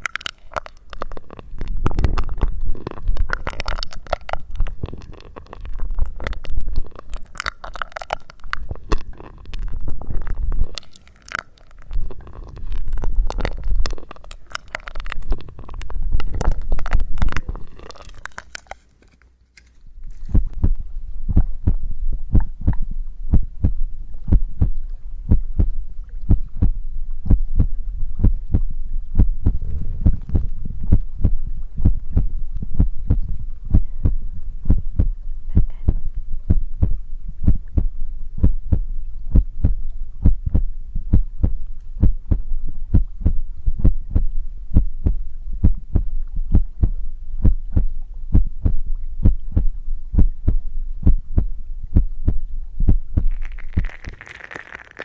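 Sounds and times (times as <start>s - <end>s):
muffled thumps on microphone: 20.2s - 25.7s, 26.3s - 54.0s.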